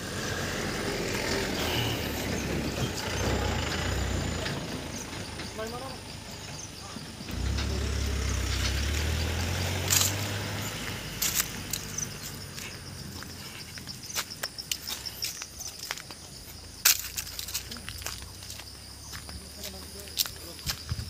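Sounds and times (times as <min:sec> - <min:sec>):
high insect drone: 0:00.0 - 0:21.0
vehicle engine humming: 0:00.0 - 0:21.0
footsteps on dry leaves: 0:09.0 - 0:21.0.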